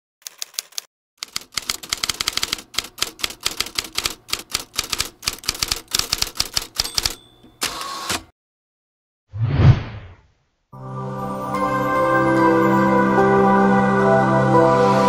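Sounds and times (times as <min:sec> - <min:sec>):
typewriter key clacks: 0:00.2 - 0:08.3
typewriter bell ring: 0:04.9 - 0:08.2.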